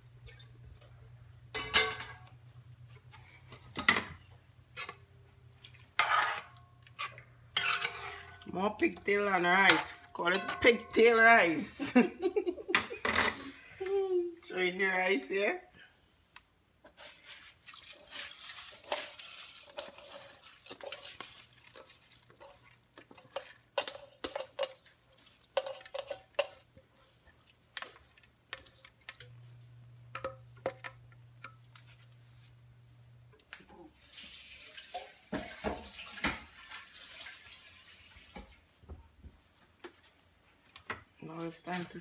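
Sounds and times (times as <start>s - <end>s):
rice pouring into liquid: 17.4s - 25.6s, 34.0s - 38.5s.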